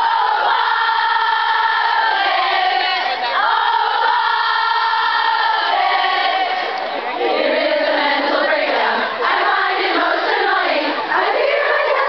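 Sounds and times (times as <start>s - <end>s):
crowd singing together: 0.0s - 12.0s.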